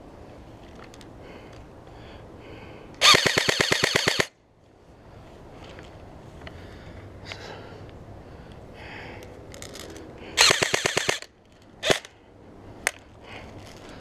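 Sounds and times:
airsoft gun firing: 0:03.0 - 0:04.3, 0:10.4 - 0:12.1.

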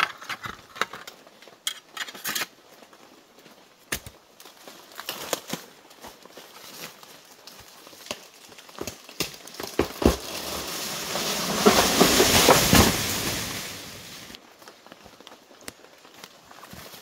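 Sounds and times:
footsteps crunching on dry leaves: 0:04.4 - 0:14.4
loud rustling: 0:09.9 - 0:14.4.

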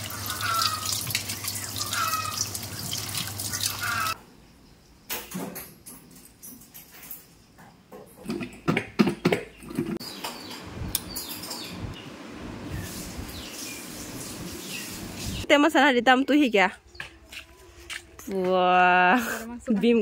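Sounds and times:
water running: 0:00.0 - 0:04.2.

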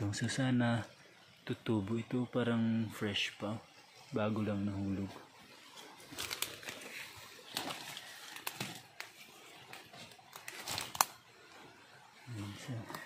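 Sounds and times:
dry leaves and twigs crackling: 0:03.8 - 0:13.0.

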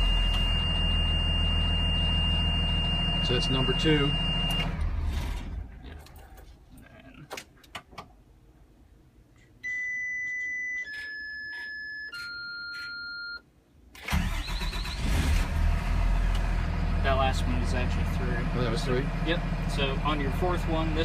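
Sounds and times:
electronic dashboard beeps: 0:00.0 - 0:04.8, 0:09.6 - 0:13.5
diesel bus engine: 0:00.0 - 0:06.9, 0:14.0 - 0:21.0
engine cranking and starting: 0:04.5 - 0:06.2, 0:14.0 - 0:16.6.

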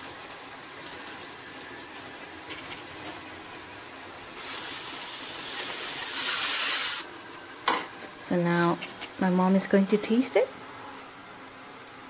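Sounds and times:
loud steady hiss: 0:04.4 - 0:07.1.

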